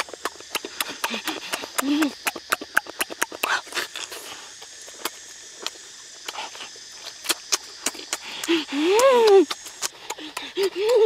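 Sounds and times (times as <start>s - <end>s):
wet lip smacks and mouth clicks: 0.0s - 11.0s.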